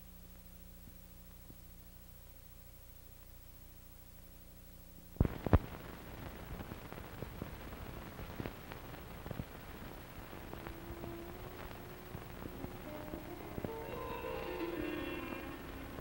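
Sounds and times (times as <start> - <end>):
hiss with crackles and clicks: 0.0 - 16.0
low steady hum: 0.0 - 16.0
steady tone: 10.3 - 16.0.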